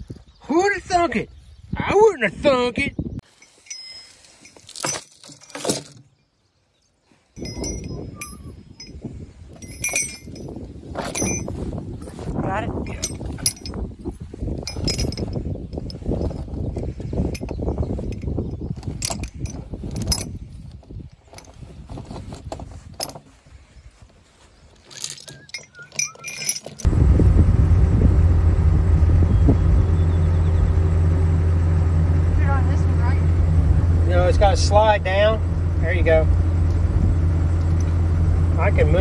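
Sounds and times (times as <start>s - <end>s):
heavy chain rattling: 3.3s - 6.1s, 7.4s - 12.2s, 12.8s - 23.4s, 24.7s - 26.9s, 32.8s - 39.0s
steady engine hum: 26.7s - 39.0s.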